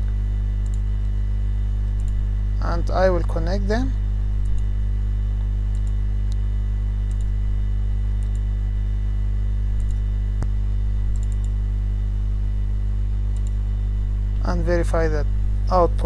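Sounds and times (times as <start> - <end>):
electrical mains hum: 0.0 - 16.0
computer mouse clicking: 0.6 - 0.9, 2.0 - 2.2, 5.7 - 6.4, 7.1 - 7.3, 8.2 - 8.5, 9.8 - 10.5, 11.1 - 11.6, 13.3 - 13.6.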